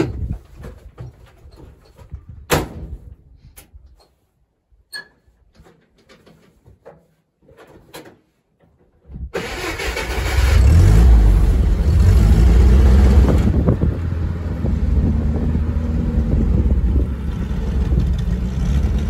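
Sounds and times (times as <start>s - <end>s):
car engine starting and running: 9.4s - 19.0s.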